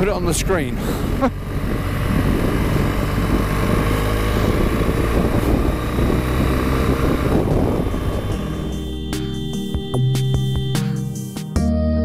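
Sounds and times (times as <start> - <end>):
wind rushing over microphone: 0.0 - 8.8
motorcycle engine running: 0.0 - 10.8.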